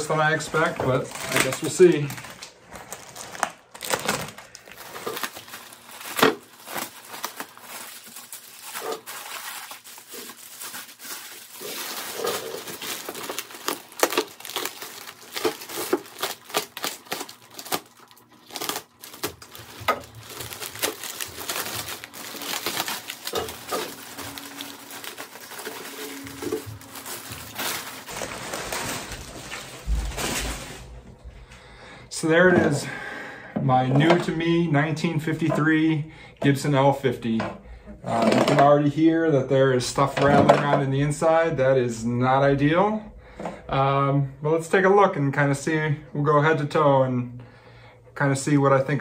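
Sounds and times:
plastic wrap crinkling and tearing: 0:00.0 - 0:31.1.

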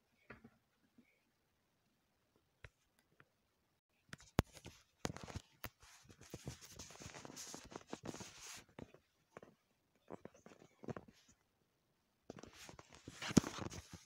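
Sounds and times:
rubbing and rustling on microphone: 0:04.2 - 0:11.4, 0:12.3 - 0:14.0.

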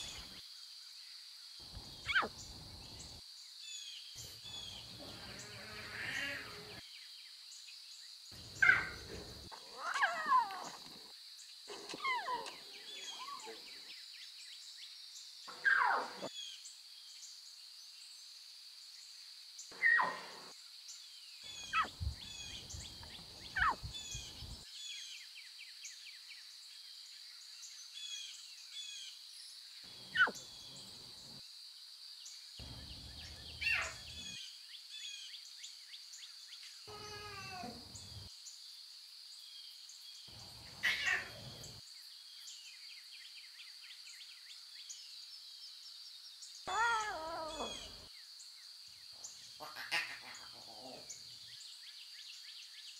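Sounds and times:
lion cubs mewing: 0:02.0 - 0:02.6, 0:04.2 - 0:06.8, 0:08.5 - 0:11.1, 0:11.7 - 0:13.8, 0:15.5 - 0:16.3, 0:19.7 - 0:20.5, 0:21.5 - 0:24.6, 0:30.0 - 0:30.5, 0:33.5 - 0:34.4, 0:36.9 - 0:38.3, 0:40.7 - 0:41.8, 0:46.7 - 0:48.1, 0:49.5 - 0:51.2.

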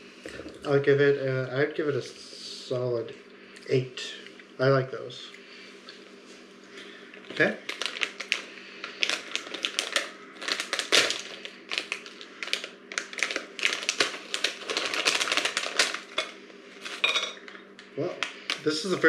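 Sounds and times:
plastic packaging crackling: 0:07.2 - 0:19.0.

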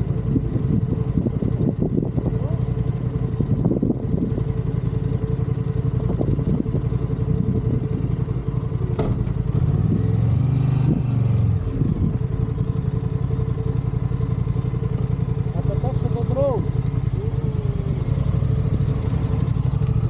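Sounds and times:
motorcycle engine idling: 0:00.0 - 0:10.3, 0:11.3 - 0:20.0
motorcycle riding past: 0:09.0 - 0:14.5, 0:15.3 - 0:20.0.

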